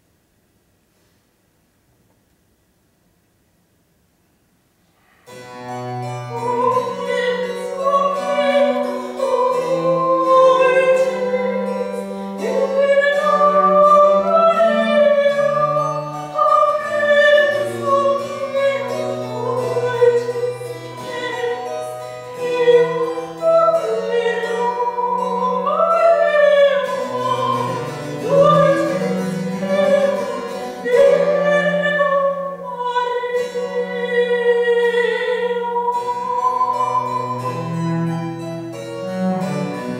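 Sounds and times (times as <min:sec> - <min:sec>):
cello: 0:05.2 - 0:39.9
harpsichord: 0:05.3 - 0:39.9
soprano voice singing: 0:06.3 - 0:37.8.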